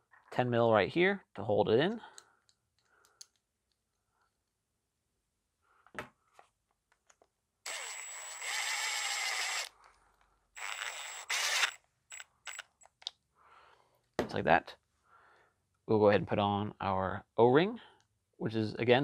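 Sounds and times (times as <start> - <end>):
power driver whining: 7.7 - 9.7, 10.6 - 12.6.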